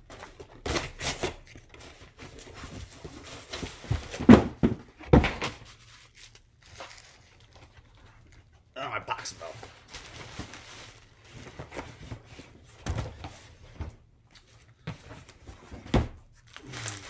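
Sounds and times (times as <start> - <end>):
cardboard box tearing: 0.6 - 1.8
bubble wrap crinkling: 5.6 - 12.4, 16.3 - 17.0.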